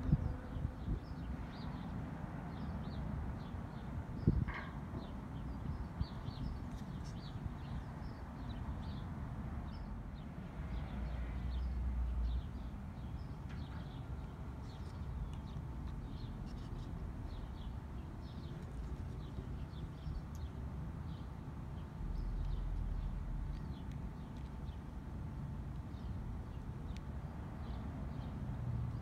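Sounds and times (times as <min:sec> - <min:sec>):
small birds chirping: 0:02.5 - 0:09.1, 0:10.8 - 0:25.0.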